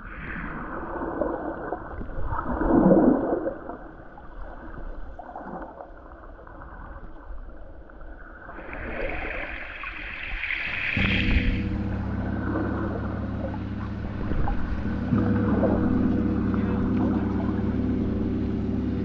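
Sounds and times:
underwater gurgling and sloshing: 0:00.0 - 0:19.0.

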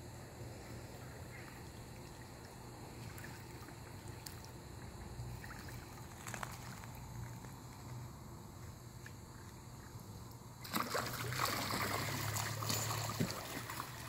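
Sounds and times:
steady low hum: 0:00.0 - 0:14.0
water lapping: 0:00.6 - 0:07.4, 0:10.6 - 0:14.0
small ticks: 0:04.1 - 0:04.9.

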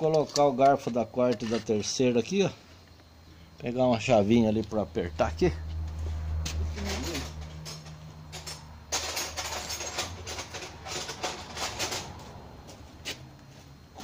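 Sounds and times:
metal hand tools clinking: 0:06.8 - 0:12.2.

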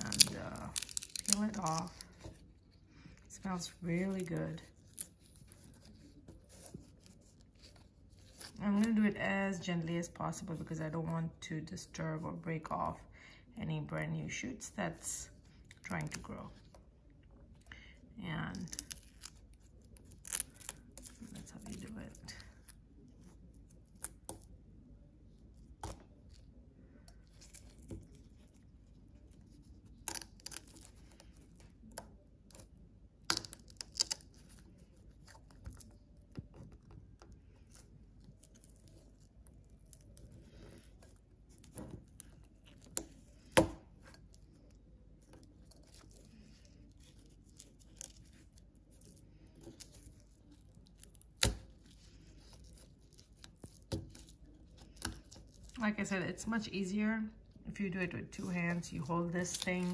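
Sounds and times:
dry stalk sheaths peeled by hand: 0:00.0 - 0:09.0, 0:18.5 - 0:24.6, 0:25.7 - 0:55.8, 0:58.3 - 0:59.9.

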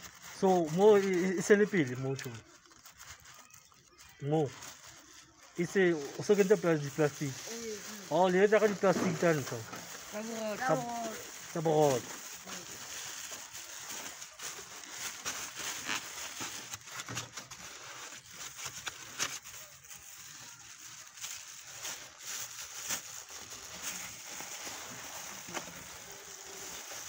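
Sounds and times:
plastic bags rustling and crinkling: 0:00.0 - 0:27.0.

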